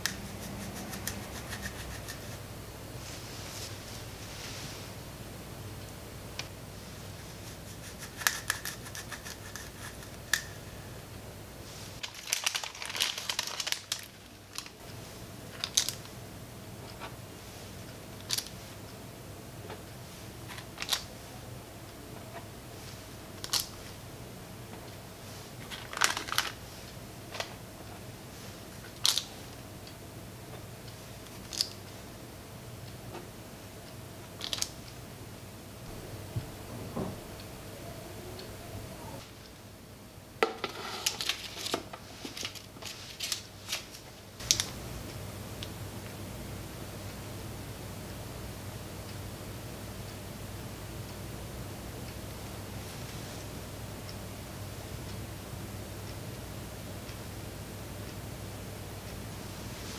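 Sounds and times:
baking paper crinkling: 11.8 - 14.8, 25.6 - 26.7, 40.6 - 44.7.

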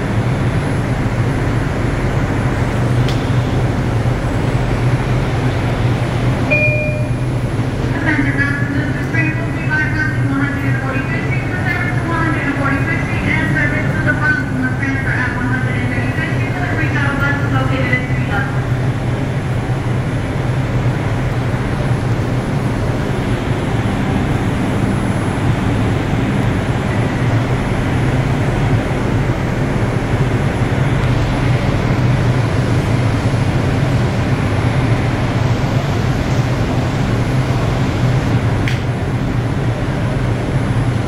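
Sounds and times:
subway car rumbling: 0.0 - 41.0.

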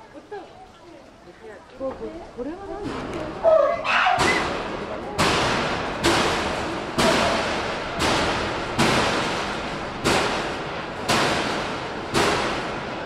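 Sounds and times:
loud bangs on hard surface: 4.2 - 13.0.

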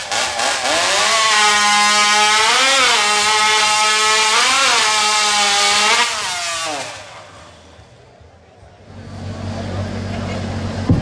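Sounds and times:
chainsaw revving: 0.0 - 7.8.

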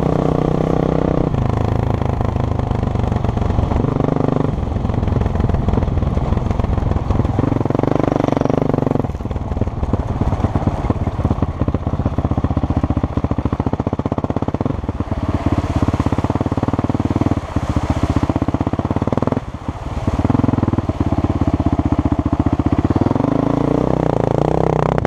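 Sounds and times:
dirt bike engine revving: 0.0 - 5.8, 7.2 - 9.4, 10.0 - 25.0
water splashing: 13.2 - 23.0.

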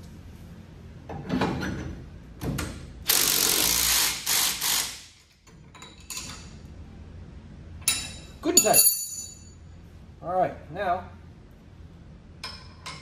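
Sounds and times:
metal handling sounds: 7.8 - 9.5.

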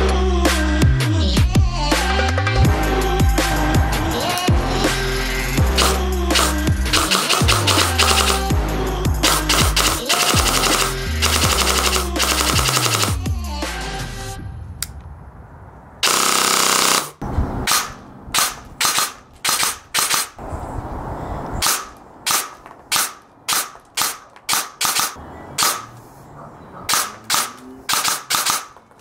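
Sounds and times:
airsoft gun full-auto burst: 5.8 - 8.5, 9.2 - 13.2, 16.0 - 20.4, 21.6 - 25.8, 26.9 - 28.7
airsoft gun single shots: 17.7 - 20.4, 21.6 - 25.9, 26.9 - 28.8.

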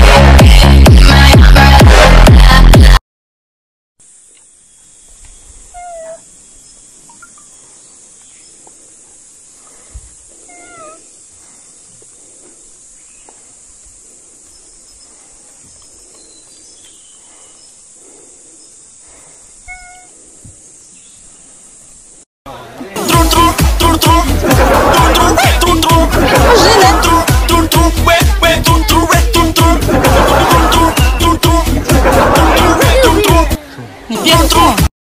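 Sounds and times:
steady hiss: 4.0 - 22.3
macaques calling: 5.6 - 6.3, 10.3 - 11.2, 19.6 - 20.2, 23.3 - 34.7.

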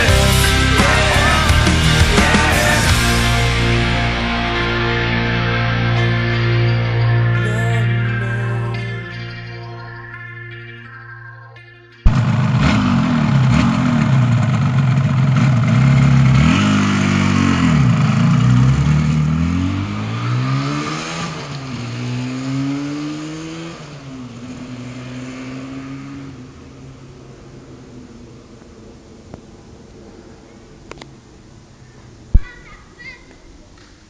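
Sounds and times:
motorcycle engine revving: 0.0 - 6.4, 12.0 - 28.3.

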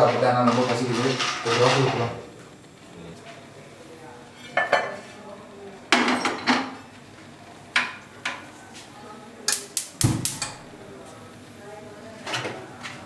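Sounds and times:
burner knob clicking: 9.5 - 10.7.

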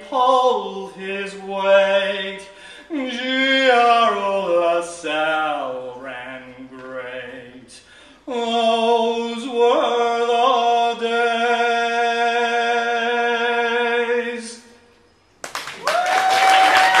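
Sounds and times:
audience applause and cheer: 15.4 - 17.0.

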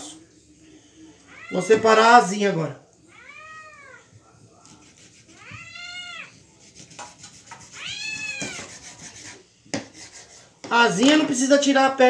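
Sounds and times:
cat meowing: 1.2 - 1.9, 3.0 - 4.2, 5.2 - 6.4, 7.6 - 8.7.

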